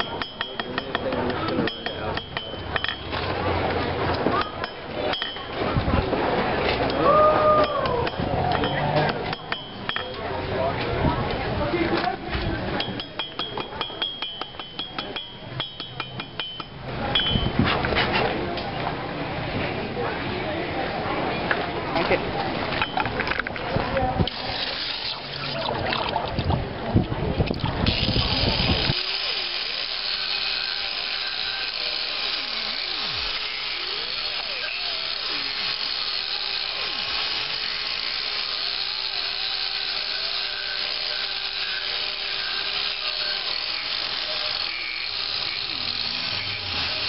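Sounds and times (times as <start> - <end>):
angle grinder grinding metal: 0.0 - 3.8, 24.3 - 25.7, 27.8 - 47.0.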